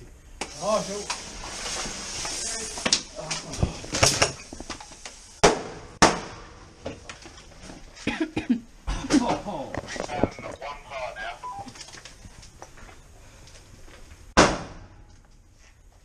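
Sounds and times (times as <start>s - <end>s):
fuse fizzing: 0.4s - 5.4s
grenade bangs: 14.4s - 15.0s.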